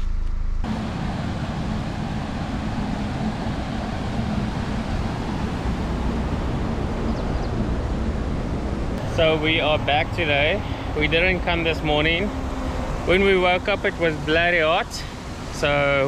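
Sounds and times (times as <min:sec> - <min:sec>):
river water rushing through weir: 0:00.7 - 0:16.0.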